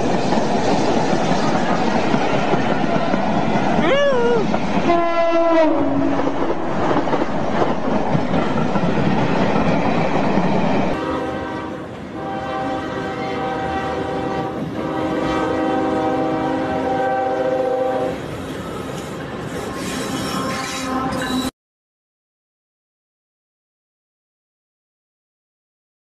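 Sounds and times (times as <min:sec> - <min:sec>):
train passing: 0:00.0 - 0:21.5
locomotive air horn chord: 0:04.9 - 0:06.1, 0:11.0 - 0:18.2.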